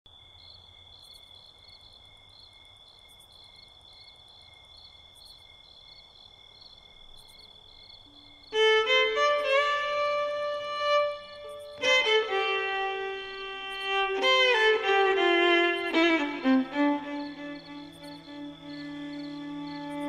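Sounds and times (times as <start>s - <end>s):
solo fiddle tune: 8.5s - 20.0s.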